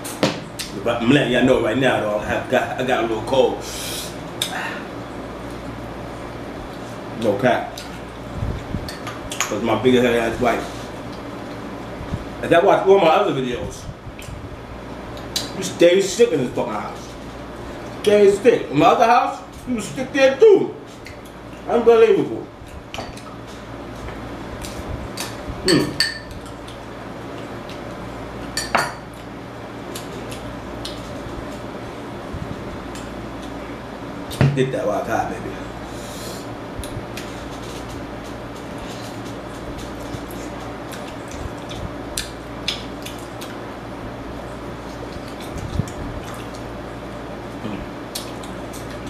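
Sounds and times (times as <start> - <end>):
steady low hum: 0.0 - 49.0
wet chewing and lip smacks: 39.8 - 43.6, 44.8 - 46.7, 48.1 - 49.0.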